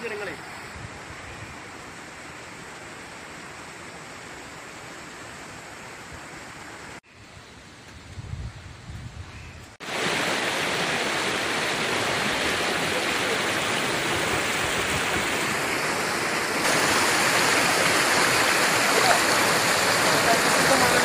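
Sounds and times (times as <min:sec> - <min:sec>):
water rushing over boulders: 0:09.8 - 0:21.0.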